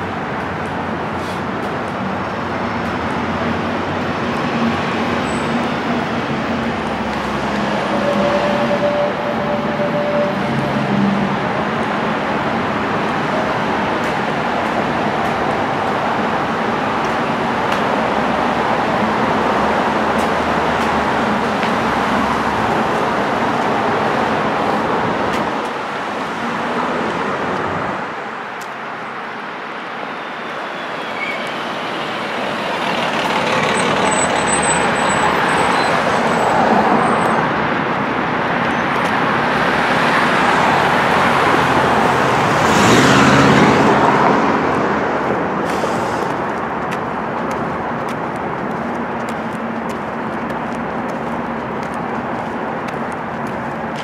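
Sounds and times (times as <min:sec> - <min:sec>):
passing cars and tyre noise: 0:00.0 - 0:54.0
loud vehicle engine passing: 0:39.6 - 0:47.3.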